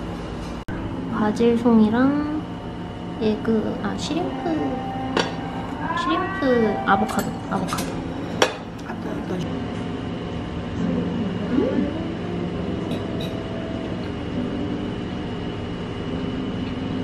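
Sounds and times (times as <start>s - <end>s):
low hum and hiss: 0.0s - 17.0s
faint high whine: 0.7s - 9.5s.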